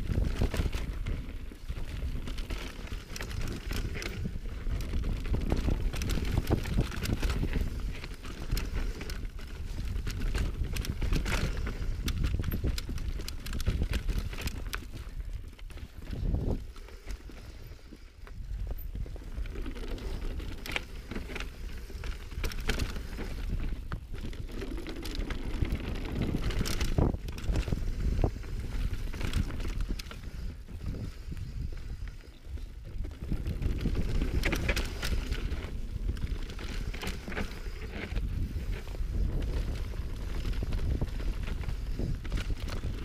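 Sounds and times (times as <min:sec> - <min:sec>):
bike tyres rolling on trail: 0:00.0 - 0:43.0
wind buffeting microphone: 0:00.0 - 0:43.0.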